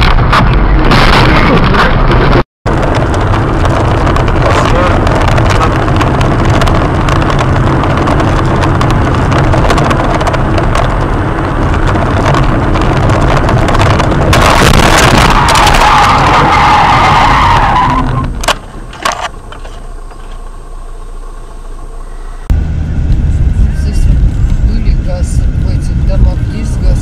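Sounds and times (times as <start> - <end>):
car road and engine noise: 0.0 - 27.0
tyre skid: 13.8 - 20.4.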